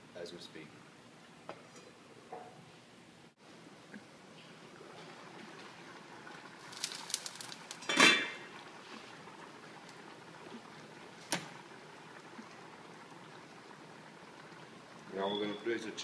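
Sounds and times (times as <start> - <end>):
sauce simmering in frying pan: 4.0 - 16.0
metal pan lid clanking: 7.8 - 8.5.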